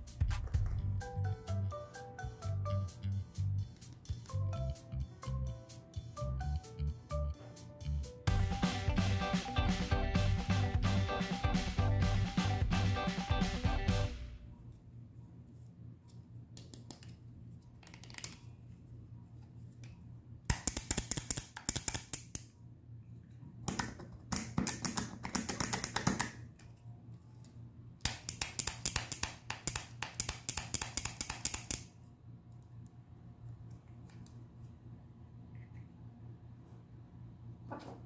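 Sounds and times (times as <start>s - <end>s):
plastic toy mechanism clicking: 28.1s - 31.9s.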